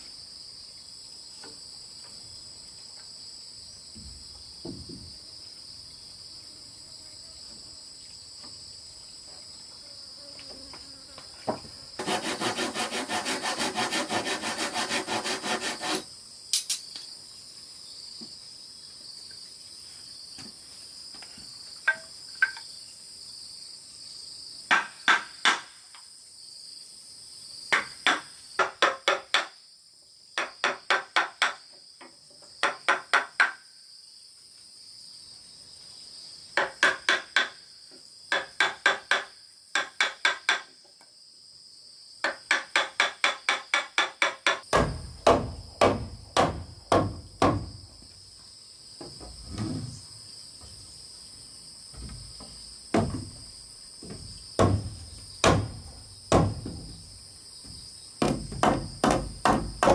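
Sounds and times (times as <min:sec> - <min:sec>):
insects calling: 0:00.0 - 0:59.9
handsaw cutting wood: 0:12.0 - 0:16.1
hammer striking chisel: 0:36.6 - 0:37.6, 0:38.3 - 0:40.7, 0:42.2 - 0:47.7, 0:58.2 - 0:59.9.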